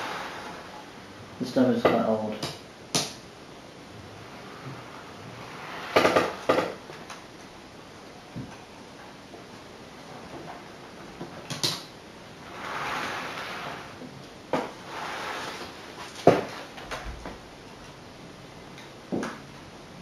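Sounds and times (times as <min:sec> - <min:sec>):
soft rushing noise: 0:03.9 - 0:07.0.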